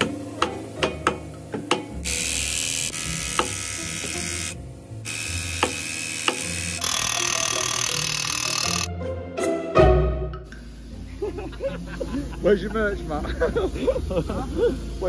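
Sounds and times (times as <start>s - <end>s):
ratchet clicking: 1.7s - 8.9s
power tool running: 2.0s - 8.9s.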